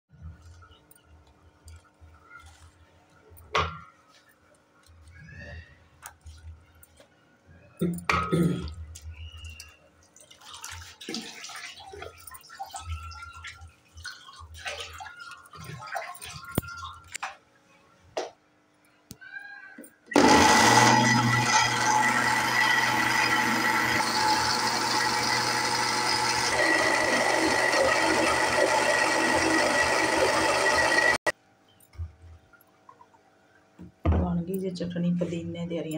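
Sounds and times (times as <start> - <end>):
electric blender running: 20.1 - 31.3.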